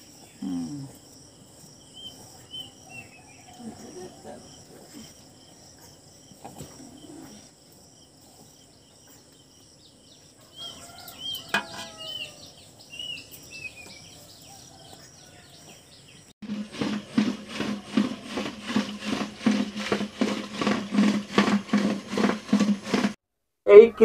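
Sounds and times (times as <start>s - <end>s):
insects trilling: 0.0s - 19.3s
bird chirping: 1.7s - 7.4s, 8.3s - 16.3s.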